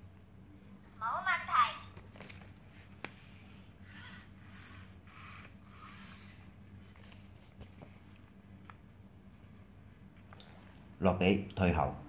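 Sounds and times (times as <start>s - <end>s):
servo motors whirring: 3.8s - 6.5s.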